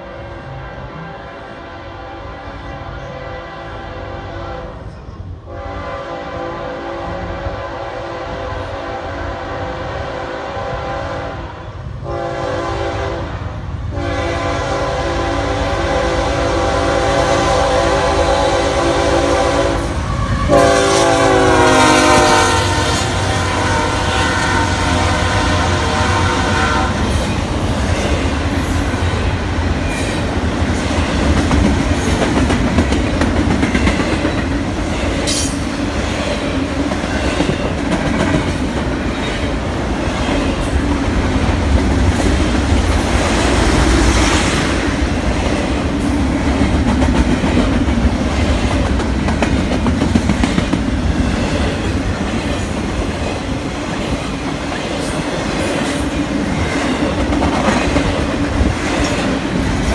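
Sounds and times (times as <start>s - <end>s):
train cars rumbling past: 0.0s - 59.9s
locomotive air horn blasts: 0.1s - 4.9s, 5.5s - 27.1s.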